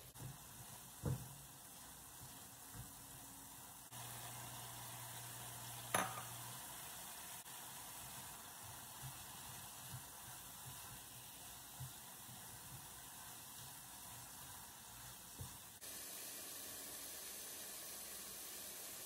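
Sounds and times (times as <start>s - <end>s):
food sizzling in a pan: 0.0s - 19.0s
knocks against a pan: 5.9s - 6.3s
spatula stirring: 7.8s - 15.8s.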